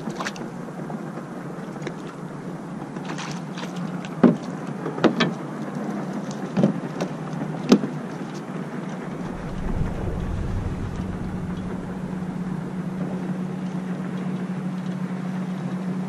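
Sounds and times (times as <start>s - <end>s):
wind and water hiss: 9.0s - 15.1s.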